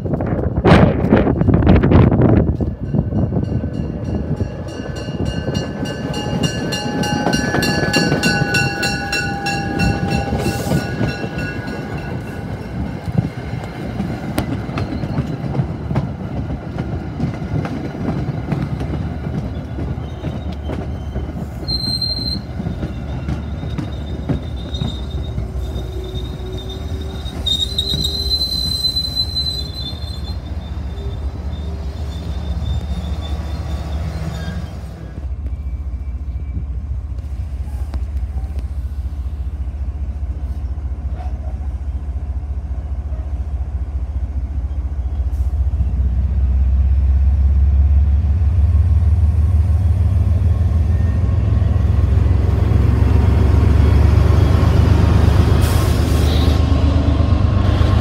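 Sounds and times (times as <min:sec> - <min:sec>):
railroad cars rumbling and clattering: 0:00.0 - 0:58.0
high-pitched wheel squeal: 0:19.5 - 0:36.7.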